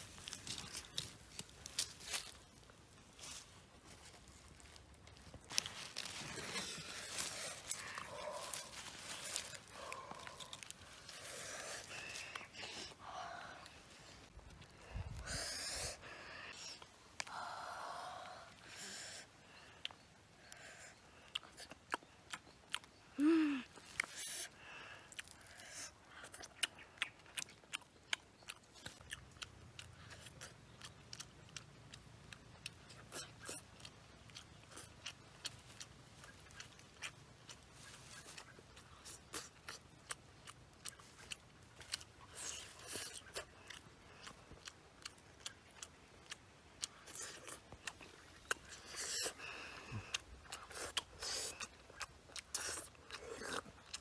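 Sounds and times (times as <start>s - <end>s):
chewing and lip-smacking: 19.8s - 23.1s, 25.1s - 54.0s
wet mouth clicks: 43.1s - 52.9s.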